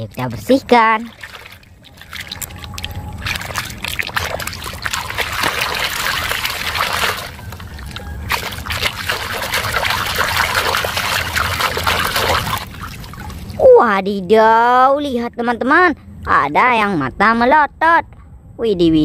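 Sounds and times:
hand sloshing water in basin: 0.6s - 13.7s.

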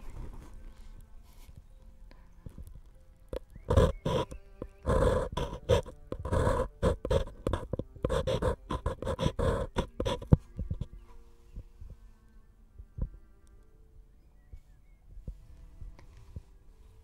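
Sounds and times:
pencil scratching on paper cup: 3.3s - 11.0s.

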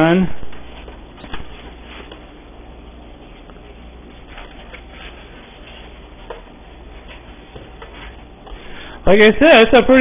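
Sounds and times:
foam scraping and rubbing: 3.0s - 8.4s.

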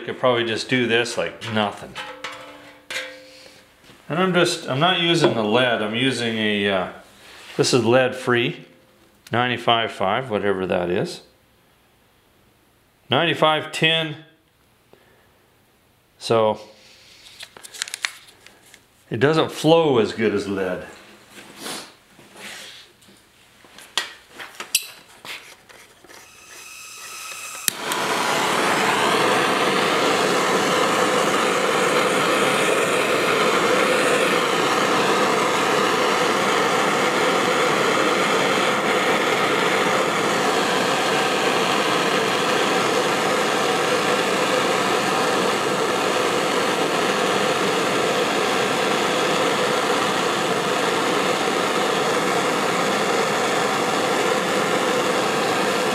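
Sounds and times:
gas torch hissing: 26.2s - 55.9s.

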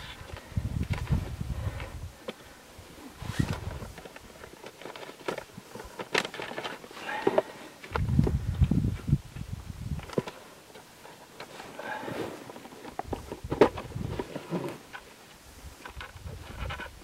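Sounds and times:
small clicks and knocks: 14.9s - 17.0s.

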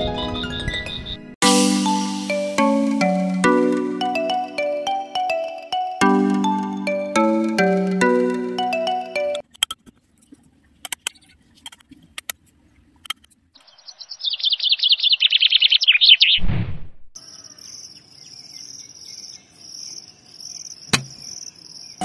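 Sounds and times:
cricket-like chirp: 17.2s - 22.0s.

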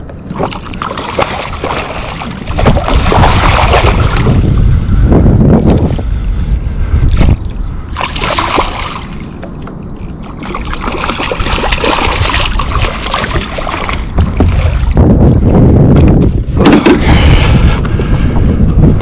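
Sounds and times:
water splashing around kayak: 0.0s - 4.8s, 7.1s - 15.0s
wind buffeting microphone: 0.0s - 19.0s.

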